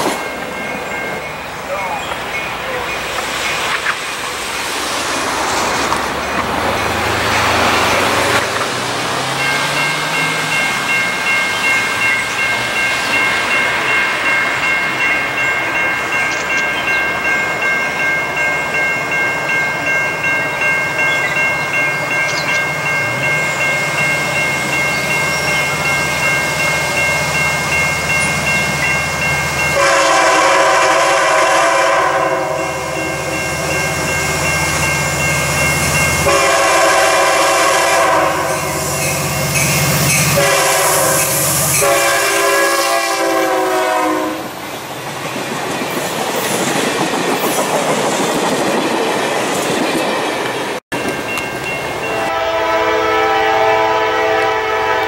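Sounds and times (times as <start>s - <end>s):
train horn: 29.6s - 33.7s, 36.0s - 39.3s, 40.1s - 44.6s, 52.1s - 55.0s.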